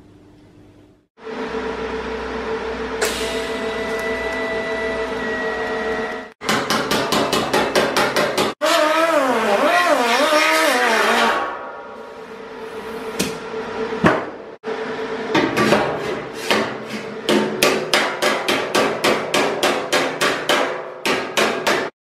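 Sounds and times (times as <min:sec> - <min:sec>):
hammer striking sheet metal: 0:06.4 - 0:08.6, 0:15.3 - 0:22.0.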